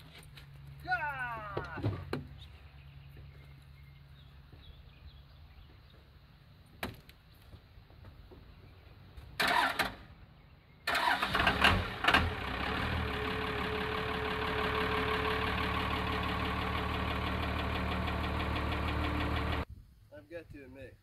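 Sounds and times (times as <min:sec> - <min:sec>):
starter cranking engine: 0:10.9 - 0:19.6
diesel engine idling: 0:11.0 - 0:19.7.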